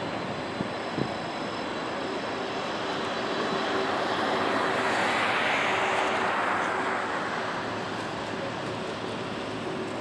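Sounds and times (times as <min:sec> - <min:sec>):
jet engines at takeoff thrust: 0:00.0 - 0:10.0.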